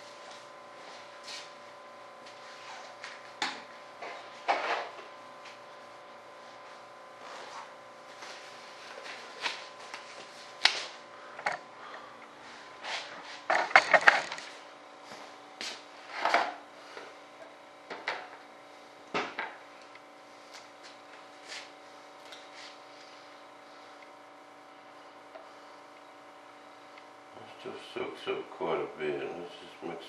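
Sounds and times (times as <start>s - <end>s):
faint steady hum: 0.0s - 30.0s.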